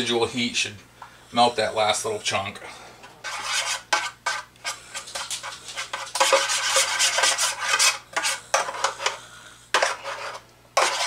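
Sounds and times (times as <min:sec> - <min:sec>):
utensil scraping metal pan: 0:03.2 - 0:11.0.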